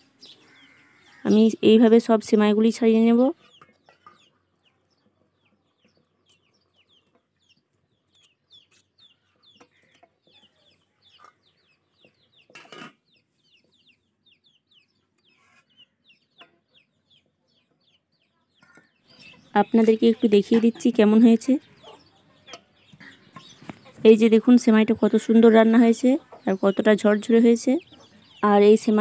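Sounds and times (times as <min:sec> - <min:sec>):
chickens cheeping: 0:00.0 - 0:01.5, 0:03.4 - 0:24.1, 0:25.0 - 0:29.0
fork scraping a pan: 0:12.5 - 0:13.0.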